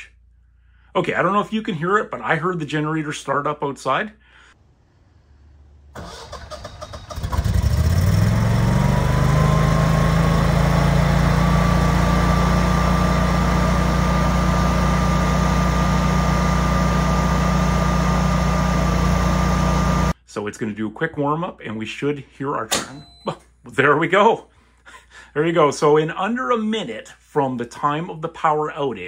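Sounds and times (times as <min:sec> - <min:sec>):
generator engine running: 0:06.0 - 0:20.2.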